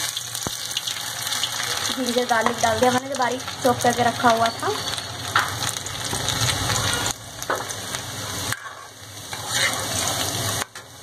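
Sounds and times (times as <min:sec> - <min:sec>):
food sizzling in hot oil: 0:00.0 - 0:11.0
ladle stirring in pan: 0:07.4 - 0:11.0.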